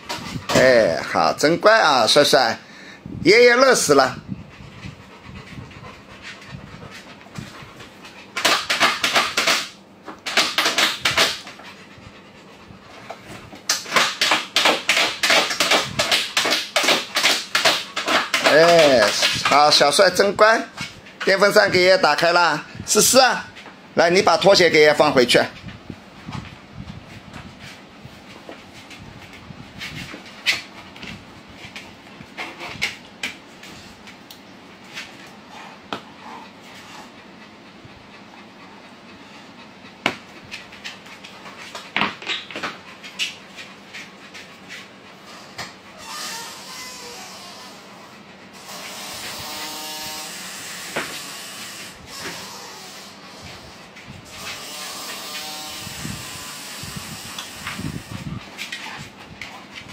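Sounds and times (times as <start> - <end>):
dog panting rapidly: 3.5 - 25.7, 26.3 - 49.5, 56.0 - 59.9.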